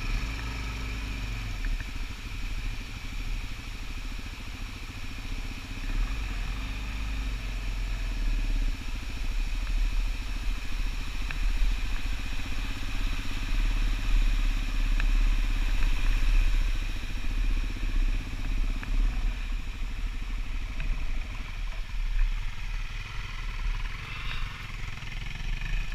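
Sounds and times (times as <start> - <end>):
motorcycle engine running: 0.0 - 25.9.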